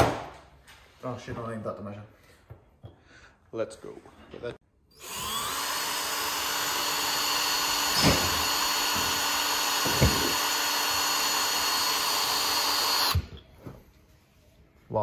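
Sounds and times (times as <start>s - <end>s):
cordless drill boring through metal: 4.9s - 13.3s.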